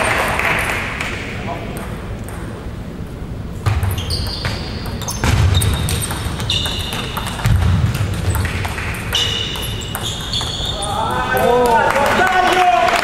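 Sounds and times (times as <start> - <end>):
shoes squeaking: 3.7 - 11.3
table tennis ball clicking: 4.2 - 10.6.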